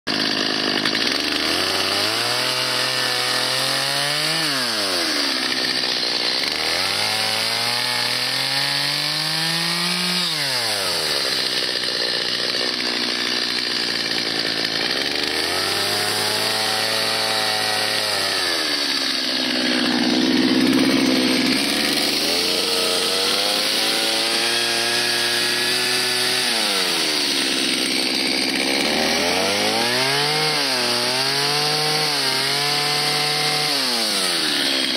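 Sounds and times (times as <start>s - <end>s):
chainsaw cutting wood: 0.1s - 34.9s.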